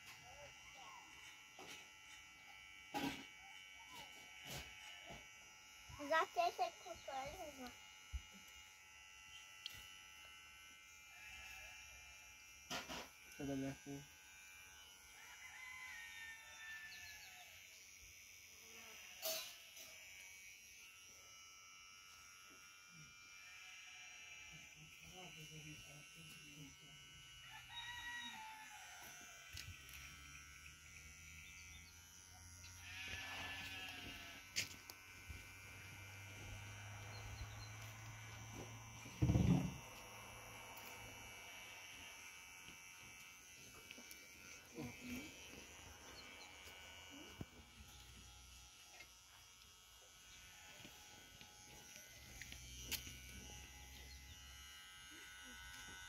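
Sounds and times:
electric hair clippers buzzing: 0.0 - 56.0
goat bleating: 32.6 - 34.8.

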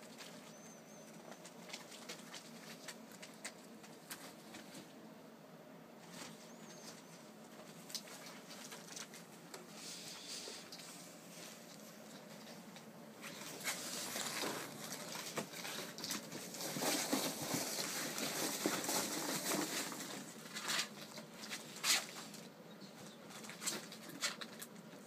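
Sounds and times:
ferret scrabbling in packing peanuts: 13.2 - 22.4.

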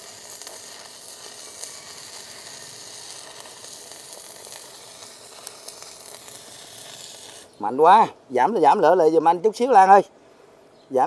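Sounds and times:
welding arc sizzling crackle: 0.0 - 8.0.

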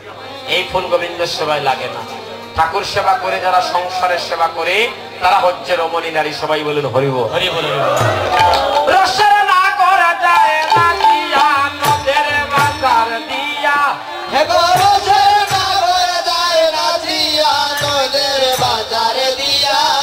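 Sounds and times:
sharp percussive hits: 8.0 - 9.3, 10.3 - 13.8, 14.5 - 16.5, 17.1 - 19.6
wavering melody line: 10.4 - 14.3.

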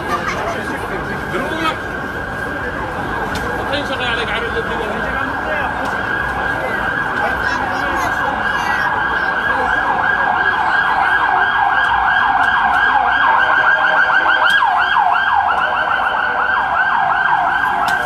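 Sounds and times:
siren yelping: 4.6 - 18.0.

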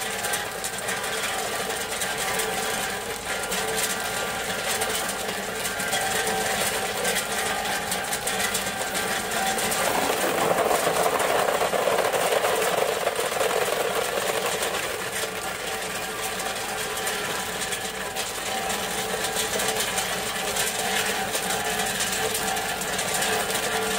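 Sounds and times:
ice machine running: 0.0 - 23.9
ice clattering into plastic basin: 8.0 - 18.0.

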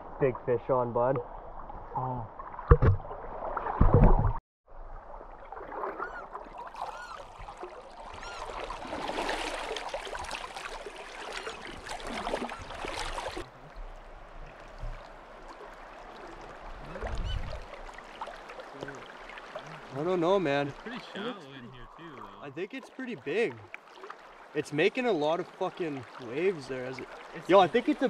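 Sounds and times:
river water rushing and splashing: 6.6 - 28.0.

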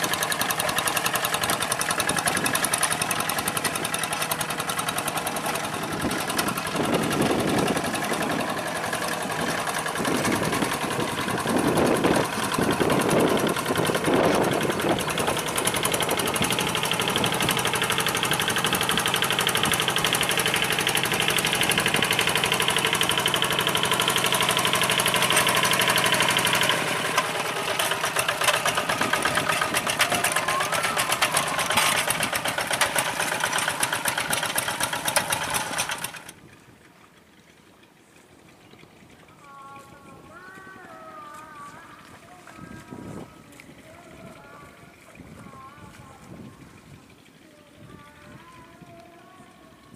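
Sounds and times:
diesel engine chugging: 0.0 - 39.4.

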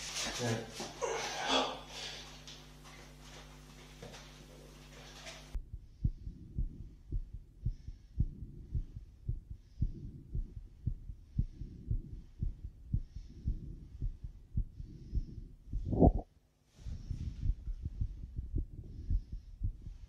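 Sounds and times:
soft breath sounds: 5.1 - 20.0
fast heartbeat through stethoscope: 5.6 - 20.0.

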